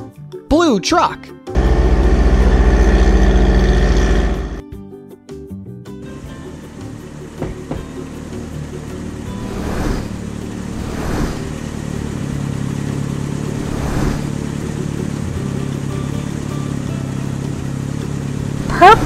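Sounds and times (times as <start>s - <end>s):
whooshing swells: 9.4s - 11.7s, 13.5s - 14.4s
cartoon toy car motor hum: 18.4s - 19.0s.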